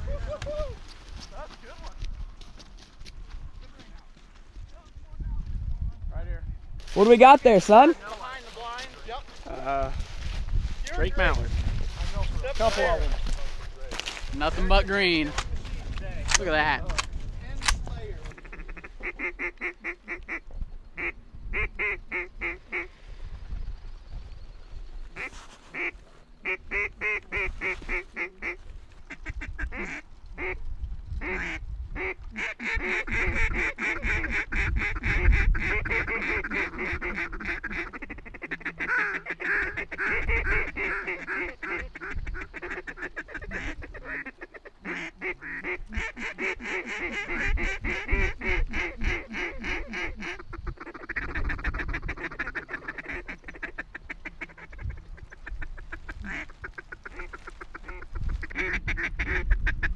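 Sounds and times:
ducks and geese calling: 18.2s - 23.3s, 25.0s - 30.6s, 31.2s - 59.9s.

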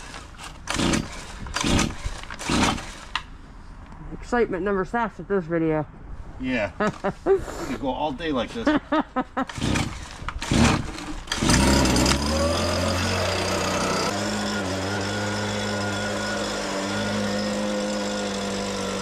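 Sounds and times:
leaf blower engine starting and running: 0.0s - 3.2s, 9.5s - 19.0s.

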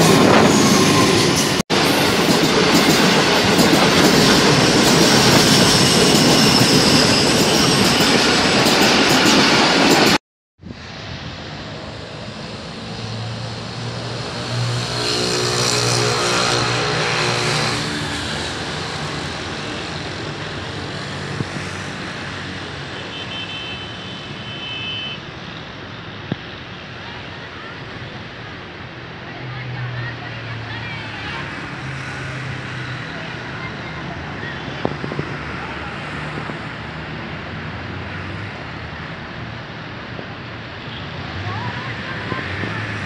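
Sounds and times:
loud train noise: 0.0s - 43.0s
outdoor background noise: 10.6s - 43.0s.

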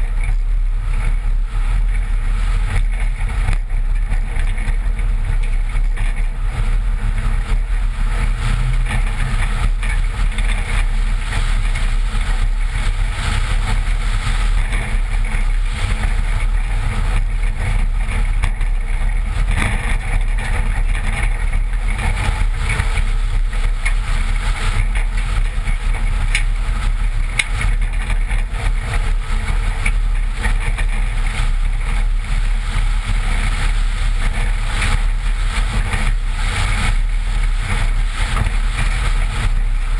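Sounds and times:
pickup engine: 0.0s - 39.9s
tyres rumbling on gravel: 0.0s - 39.9s
wind on microphone: 0.0s - 39.9s.

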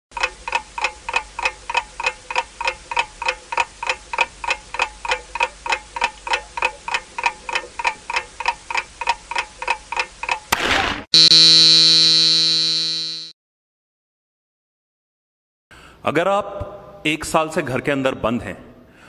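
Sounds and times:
clock ticking with ringing tone: 0.1s - 10.5s.

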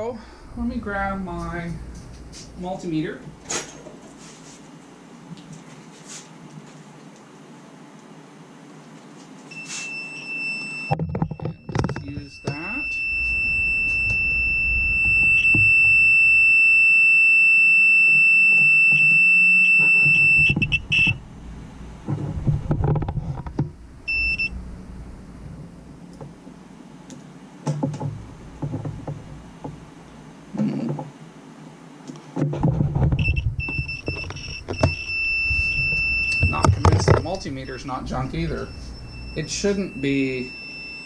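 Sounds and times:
multimeter high-pitched beep: 9.5s - 21.2s, 24.1s - 24.6s, 33.2s - 41.0s.

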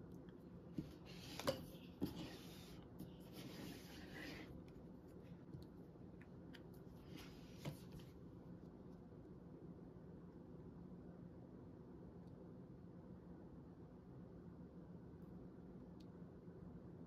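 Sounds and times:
cutting mat and paper rustling: 0.1s - 8.7s.

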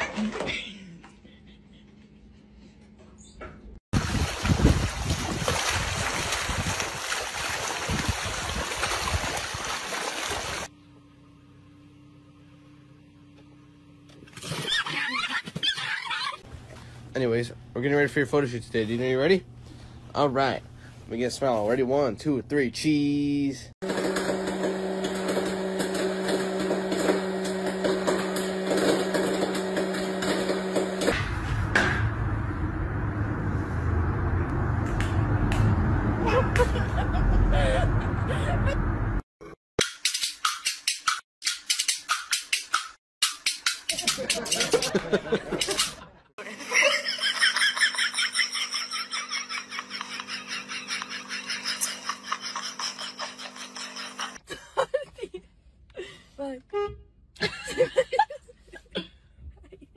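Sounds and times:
kitchen appliance motor humming: 23.8s - 31.1s, 47.8s - 54.4s
low rumble: 31.2s - 39.2s.

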